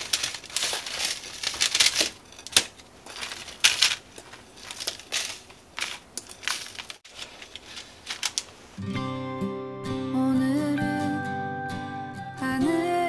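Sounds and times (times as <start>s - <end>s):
wooden spatula scraping churros: 0.0s - 8.6s
paper crinkling: 0.0s - 8.8s.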